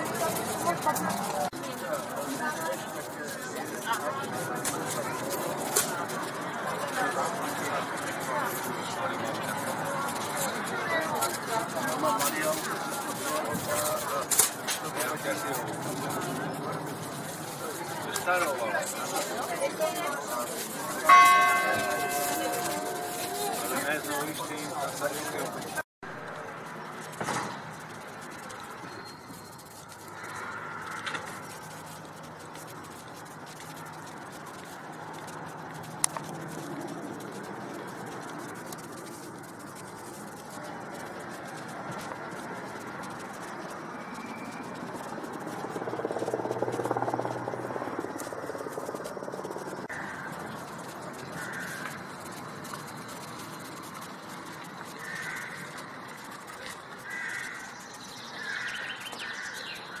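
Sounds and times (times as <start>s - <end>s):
street ambience: 0.0s - 60.0s
crows cawing: 49.9s - 52.4s, 54.8s - 60.0s.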